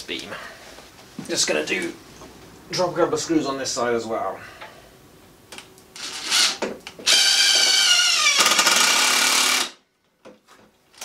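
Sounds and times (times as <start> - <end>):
cordless drill driving screw: 6.0 - 9.8.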